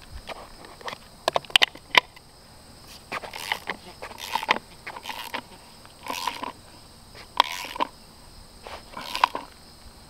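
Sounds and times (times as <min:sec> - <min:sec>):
socket ratchet clicking: 0:07.4 - 0:07.9, 0:09.0 - 0:09.5.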